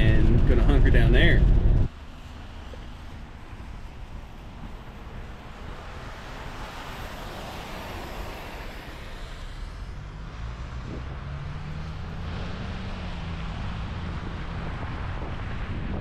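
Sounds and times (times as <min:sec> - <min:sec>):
wind buffeting microphone: 0:00.0 - 0:01.9, 0:10.7 - 0:16.0
car engine hum: 0:00.0 - 0:16.0
tyres hissing on wet road: 0:02.0 - 0:10.0.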